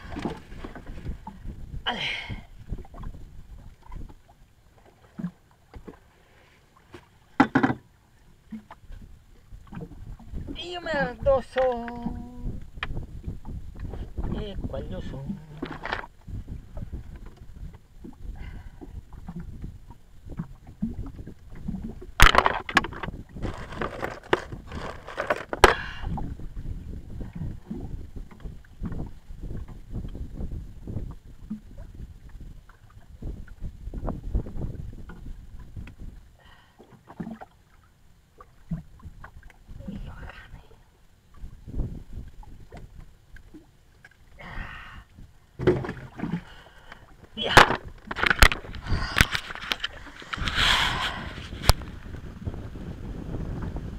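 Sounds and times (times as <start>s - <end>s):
knocks against boat hull: 7.4s - 7.8s
rustling and rattling: 22.2s - 25.7s.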